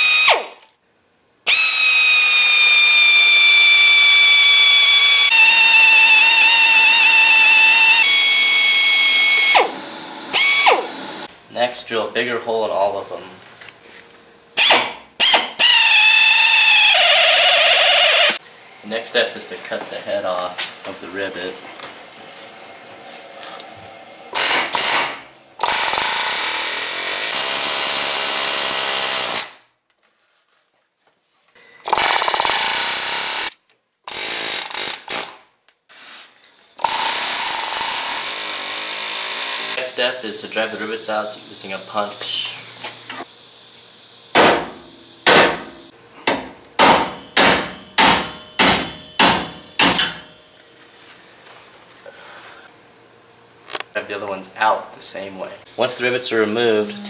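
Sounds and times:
pneumatic air chisel hammering: 1.5s - 11.3s, 14.6s - 18.4s, 24.4s - 29.6s, 31.9s - 33.5s, 36.8s - 39.8s, 44.3s - 50.3s
hammer striking steel punch: 44.3s - 50.3s.

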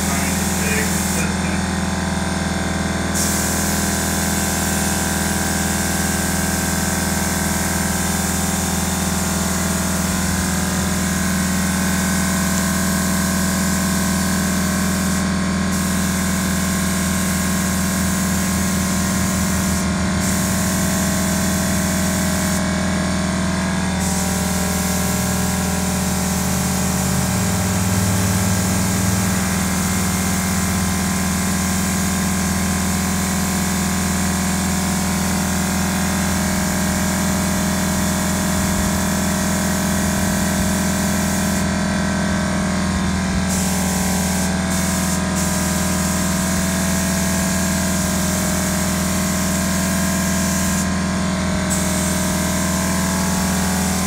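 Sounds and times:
paint spray gun hissing: 0.0s - 1.8s, 3.1s - 23.2s, 24.0s - 41.7s, 43.0s - 54.0s
air compressor humming: 0.0s - 54.0s.

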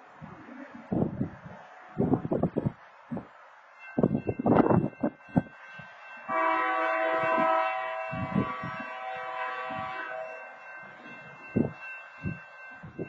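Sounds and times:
train horn blast: 6.2s - 10.5s.

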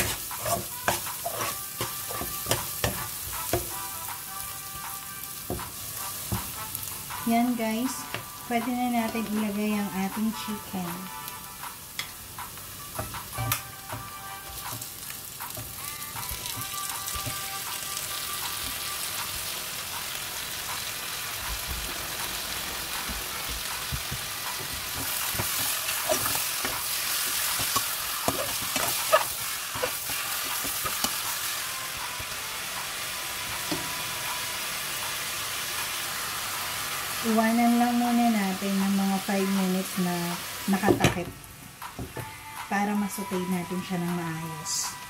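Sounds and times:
spatula scraping and knocking pot: 0.0s - 3.7s, 23.8s - 31.2s
chicken sizzling in hot oil: 0.0s - 40.9s.

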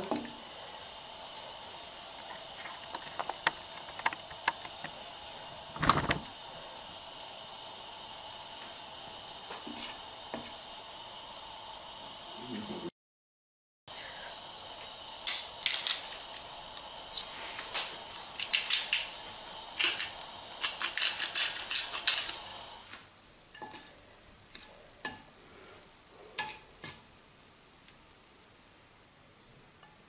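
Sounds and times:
sizzling in a frying pan: 0.0s - 12.8s, 13.9s - 28.4s
pepper grinders clicking: 15.2s - 17.3s, 18.1s - 22.5s.

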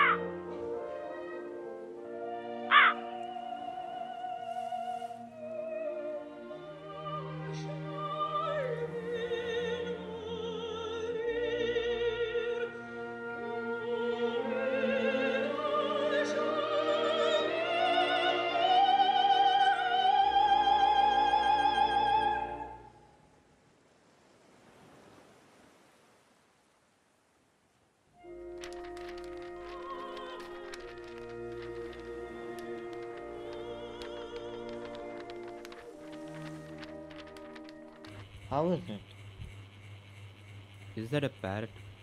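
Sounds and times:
operatic high voice singing: 13.6s - 22.6s.

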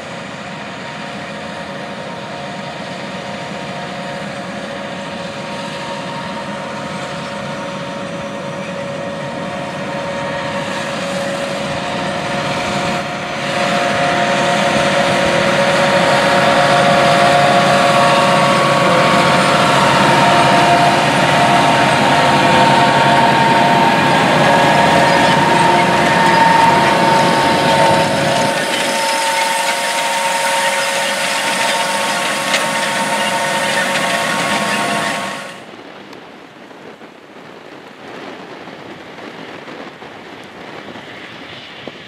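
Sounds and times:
tractor diesel engine under load: 0.0s - 35.8s
steady whine: 0.0s - 37.0s
planter rattling: 8.5s - 35.6s.

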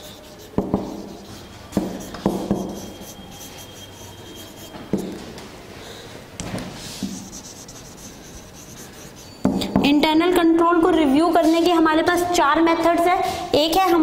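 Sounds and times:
marker rubbing on whiteboard: 0.0s - 5.3s, 6.8s - 9.7s
marker knocking on whiteboard: 0.6s - 1.1s, 1.7s - 2.9s, 4.8s - 5.2s, 9.4s - 10.0s.

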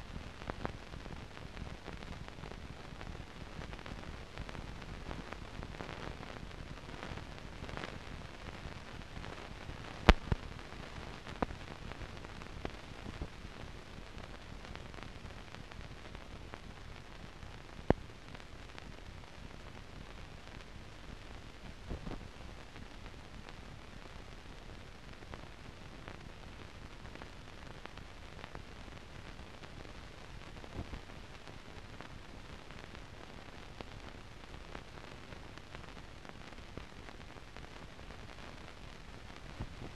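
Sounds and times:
film soundtrack hiss and crackle: 0.0s - 39.9s
sharp clicks and pops: 9.0s - 13.4s.

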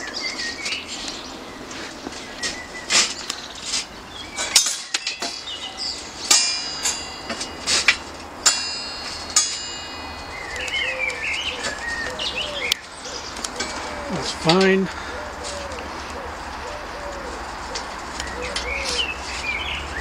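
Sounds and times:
birds chirping: 0.0s - 20.0s
ringing metallic clinks: 4.4s - 11.8s, 12.8s - 14.8s
pigeon cooing: 10.5s - 19.4s.

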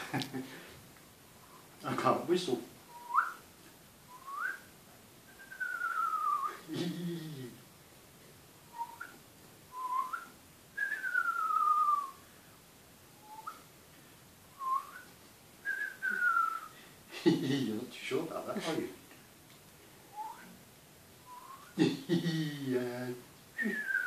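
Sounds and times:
person whistling: 2.9s - 3.4s, 4.1s - 4.7s, 5.3s - 6.6s, 8.7s - 12.2s, 13.2s - 13.6s, 14.6s - 15.1s, 15.7s - 16.7s, 20.1s - 20.5s, 21.3s - 21.8s, 23.6s - 24.0s.

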